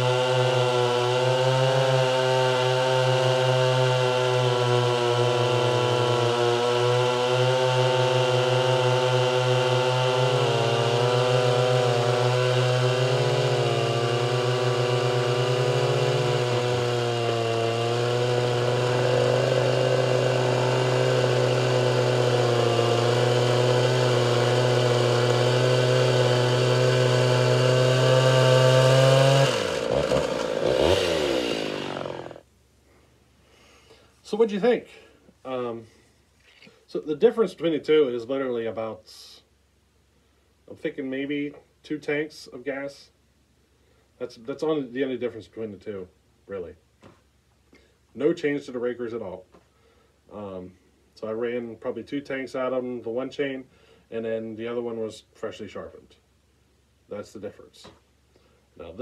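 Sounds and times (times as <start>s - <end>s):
chainsaws cutting firewood: 0.0s - 32.5s.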